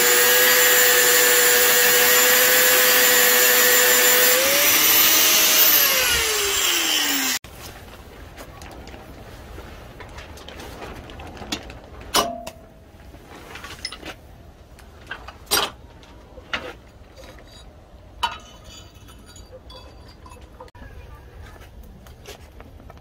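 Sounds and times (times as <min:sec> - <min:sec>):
steel machinery parts clanking: 0:16.5 - 0:20.7.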